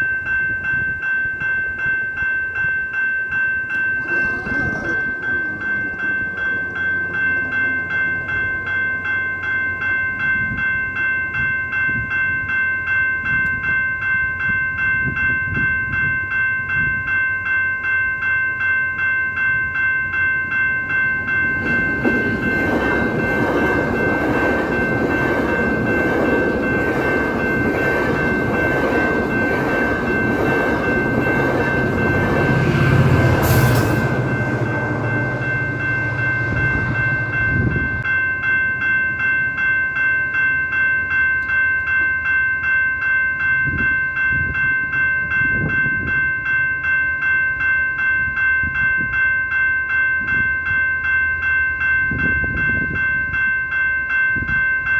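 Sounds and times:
crossing signal bells ringing: 0.0s - 54.9s
train passing at speed: 3.7s - 12.5s, 20.2s - 39.4s.

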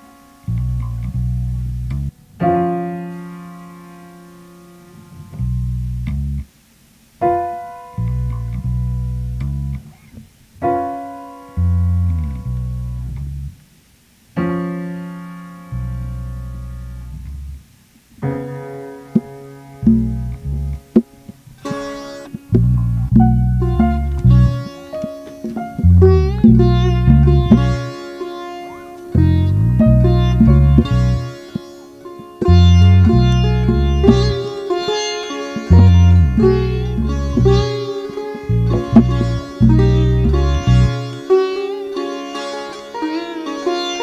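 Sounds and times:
low sustained bass: 0.0s - 2.2s, 5.0s - 6.5s, 8.0s - 10.0s, 11.5s - 13.6s, 15.7s - 17.7s, 19.8s - 41.8s
short plucked notes: 11.5s - 13.6s, 19.1s - 44.0s
keyboard chords: 18.2s - 42.2s.

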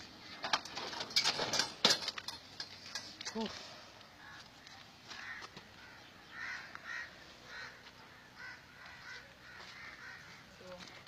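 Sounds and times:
faint bird calls: 4.1s - 11.0s.

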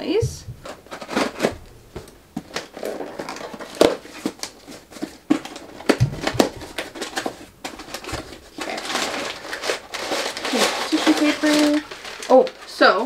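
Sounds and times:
louder knocks: 5.9s - 6.8s.

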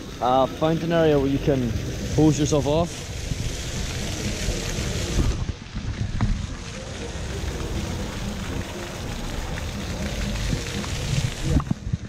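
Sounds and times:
shower water spraying on ground: 0.0s - 12.0s.

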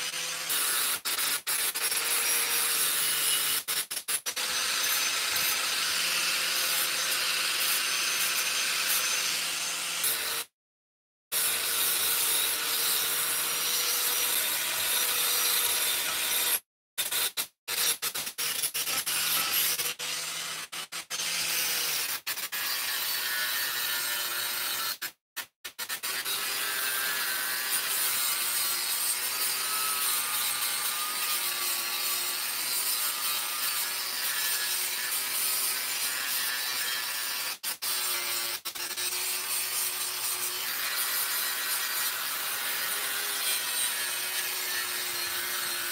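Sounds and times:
angle grinder grinding steel: 26.0s - 45.9s.

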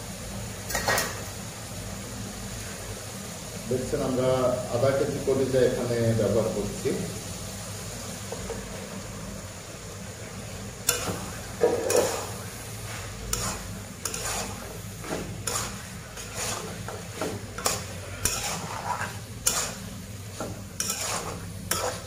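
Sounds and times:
light sizzle: 0.0s - 22.0s
steady low hum: 1.3s - 22.0s
spatula scraping in a wok: 10.8s - 22.0s.

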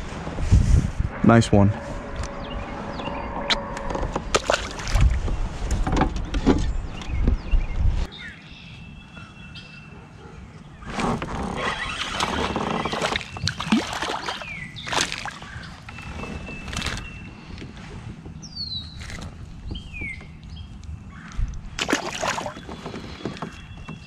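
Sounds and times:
water sloshing: 4.3s - 5.2s, 11.6s - 17.2s, 21.8s - 24.0s.

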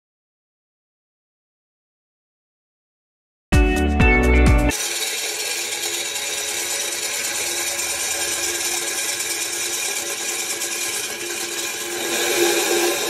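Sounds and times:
electric grinder whirring: 4.7s - 13.0s.

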